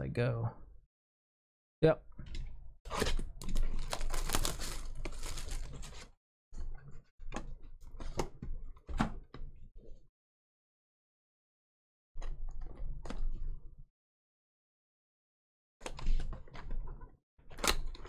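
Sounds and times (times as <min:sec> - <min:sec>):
plastic wrapping crinkling and tearing: 0:03.0 - 0:06.1.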